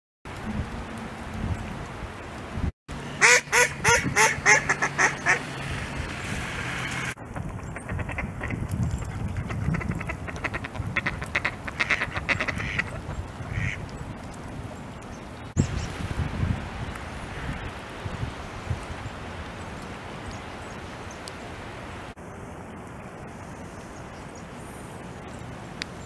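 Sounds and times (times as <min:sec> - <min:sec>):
ducks quacking: 0:03.2 - 0:05.6, 0:07.4 - 0:08.6, 0:09.4 - 0:13.8.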